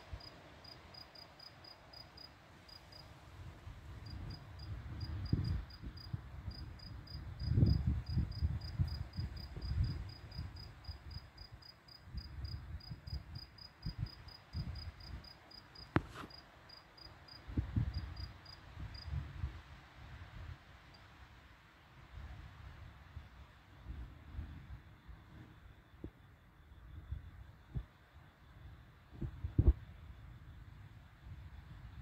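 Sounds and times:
cricket chirping: 0.0s - 3.1s, 4.0s - 19.2s.

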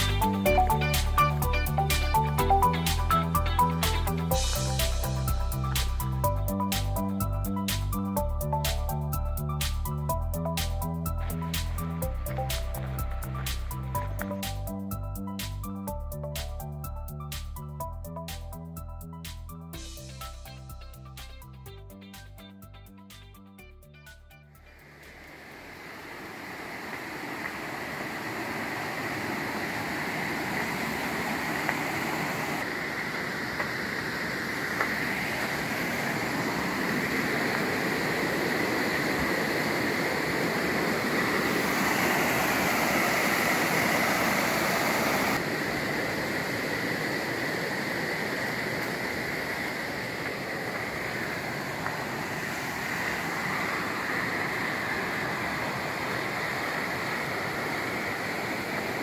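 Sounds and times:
creek running over rocks: 10.6s - 14.8s, 24.8s - 59.0s.

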